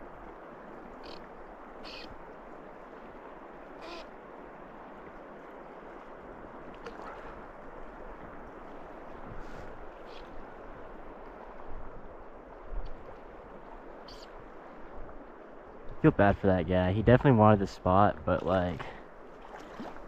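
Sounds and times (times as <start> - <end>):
river water rushing: 18.4 - 20.0.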